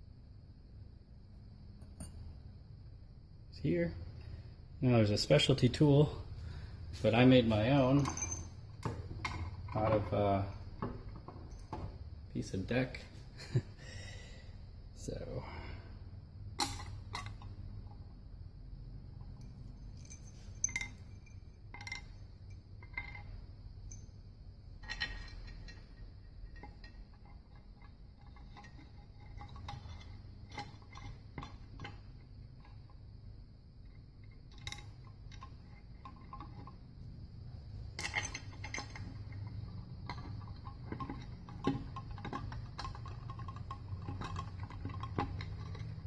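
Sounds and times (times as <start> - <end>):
steady low hum: 0.0 - 46.0
metal hardware clinking on wood: 7.6 - 12.0, 16.6 - 17.5, 19.2 - 24.2, 24.8 - 33.0, 38.0 - 46.0.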